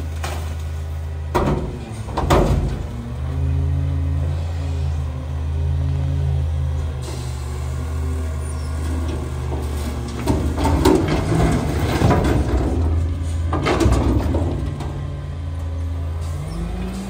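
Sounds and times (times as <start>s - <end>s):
garbage truck engine running: 0.0s - 17.0s.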